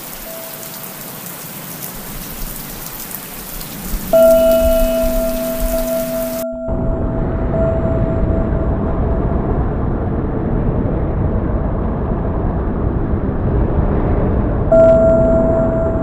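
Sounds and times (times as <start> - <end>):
ringing tone: 0.2 - 1.0, 4.2 - 10.0, 14.7 - 16.0
deep rushing noise: 4.0 - 16.0.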